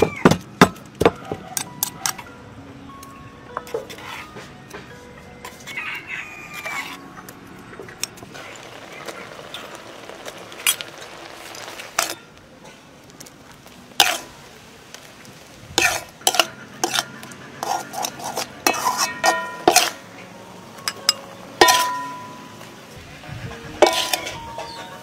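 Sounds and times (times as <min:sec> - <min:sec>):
metal ladle scraping a wok: 0:03.8 - 0:04.5, 0:06.5 - 0:07.0, 0:08.1 - 0:12.9, 0:14.0 - 0:14.3, 0:15.8 - 0:20.1, 0:20.8 - 0:25.0.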